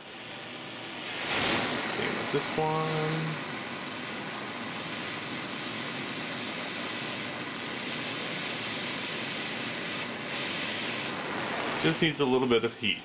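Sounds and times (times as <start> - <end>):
butane torch hissing: 0.0 - 13.0.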